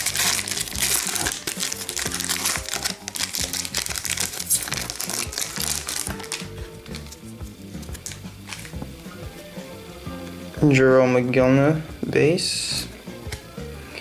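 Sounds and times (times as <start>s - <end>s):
foil wrapper crinkling: 0.0s - 8.9s
background music: 0.0s - 14.0s.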